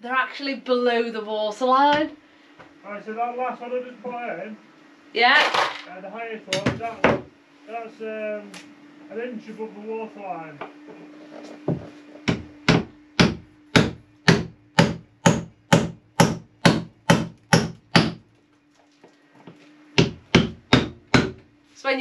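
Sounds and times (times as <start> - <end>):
hammer striking wood: 6.5 - 7.3, 12.2 - 18.2, 20.0 - 21.4.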